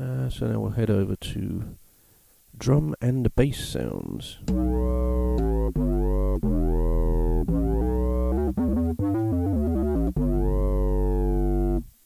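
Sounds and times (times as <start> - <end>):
synthesizer bass notes: 4.5 - 11.9.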